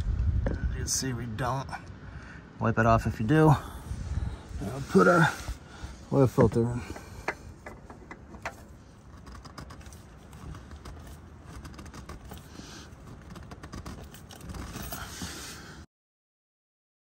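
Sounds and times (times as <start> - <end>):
oil filter clicking and rattling: 6.3 - 15.1.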